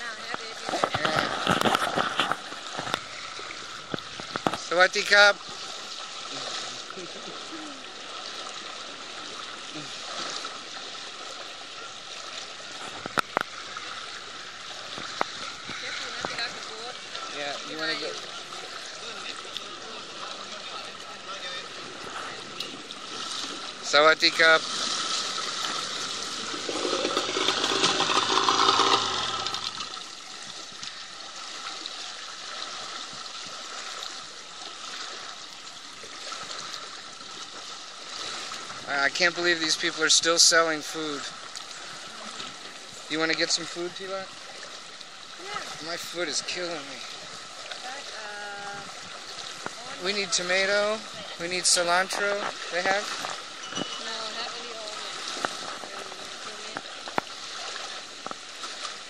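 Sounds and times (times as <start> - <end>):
wading through floodwater: 0.0 - 59.0
water splashing and churning: 0.0 - 59.0.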